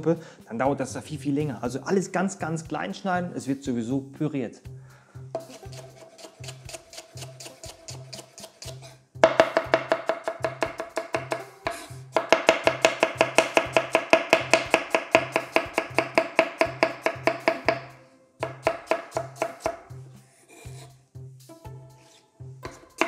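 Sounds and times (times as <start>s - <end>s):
background music with low beat: 0.0s - 23.0s
knife chopping on wooden board: 5.4s - 19.9s, 22.6s - 23.0s.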